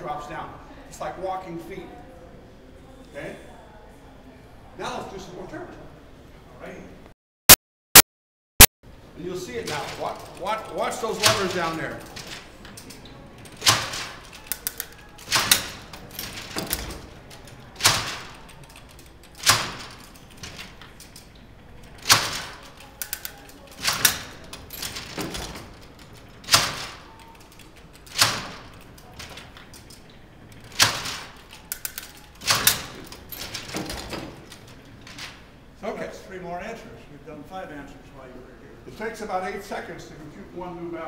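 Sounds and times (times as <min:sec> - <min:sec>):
metal mechanism clacking: 0:09.6 - 0:35.5.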